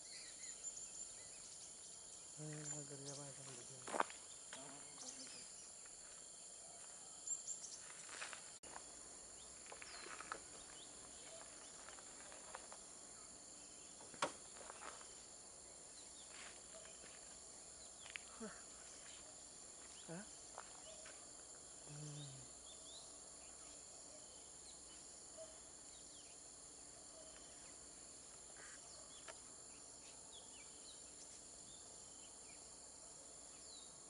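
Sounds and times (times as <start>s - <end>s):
faint chirps: 9.3s - 32.8s.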